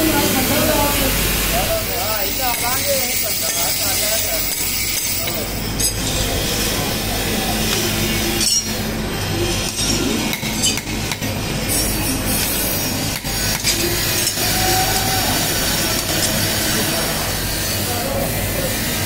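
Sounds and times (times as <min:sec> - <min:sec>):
hammer striking blade on anvil: 0:07.7 - 0:08.8.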